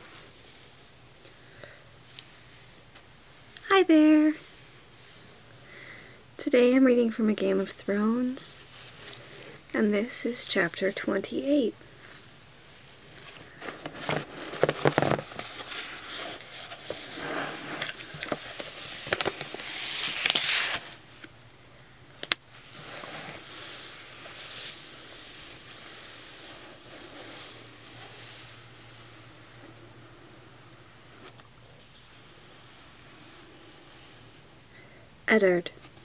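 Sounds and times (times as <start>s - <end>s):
soft paper rustling: 13.0s - 21.3s
book pages flipping: 13.1s - 21.3s.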